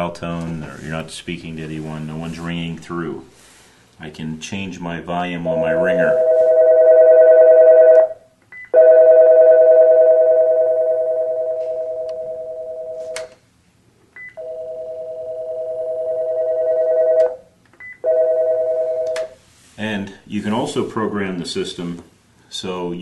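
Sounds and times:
two-tone phone ring: 6.2s - 13.2s, 14.4s - 17.4s, 18.0s - 19.2s.

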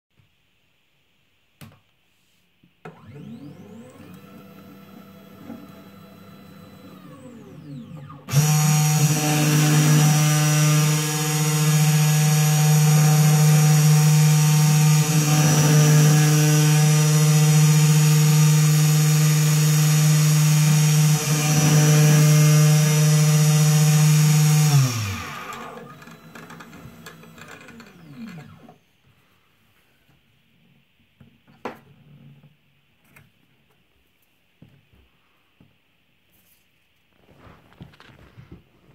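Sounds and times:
motors whining: 3.0s - 28.8s.

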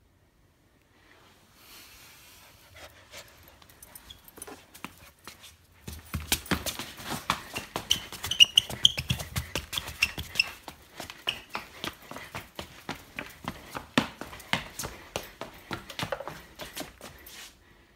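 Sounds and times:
puppy squeaking: 7.6s - 10.6s.

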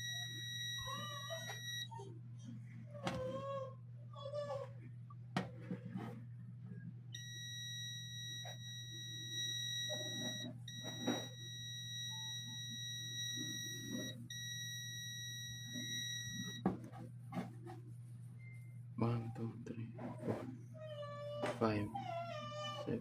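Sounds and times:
multimeter continuity beep: 0.0s - 1.9s, 7.1s - 16.6s
low steady hum: 0.0s - 23.0s.

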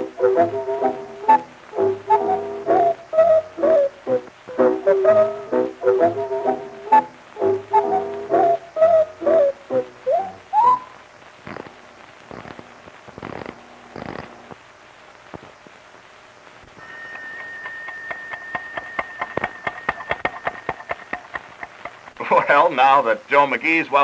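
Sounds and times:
sharp clicks: 11.4s - 14.6s
steady high note: 16.8s - 21.2s
pocket watch ticking: 16.8s - 22.0s.

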